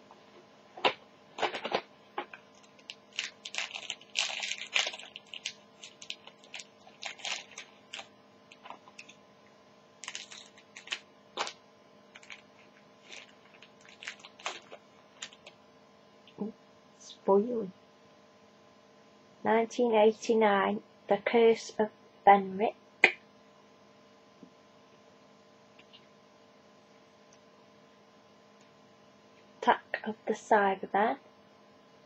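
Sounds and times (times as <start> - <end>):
card packaging crinkling and rustling: 1.4 - 9.2, 10.0 - 15.6.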